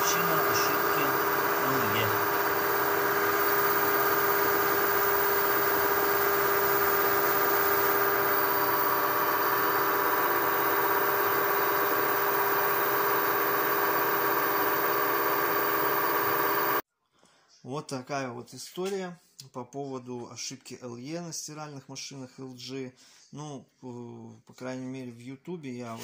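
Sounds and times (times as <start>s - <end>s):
steady mechanical hum: 0.0s - 16.8s.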